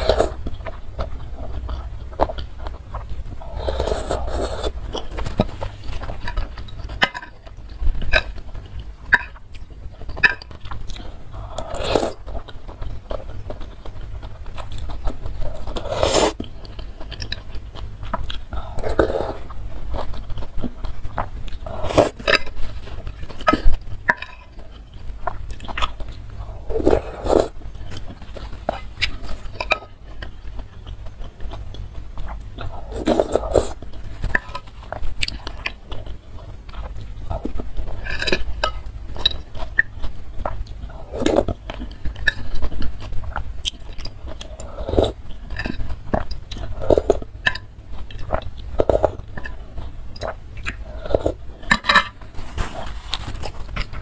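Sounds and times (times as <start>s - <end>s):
slurping soup: 0.0s - 0.5s, 3.0s - 6.4s, 11.0s - 12.3s, 15.3s - 16.6s, 18.6s - 19.6s, 21.5s - 22.7s, 26.4s - 27.6s, 32.6s - 34.5s, 44.3s - 45.9s
chewing: 0.0s - 54.0s.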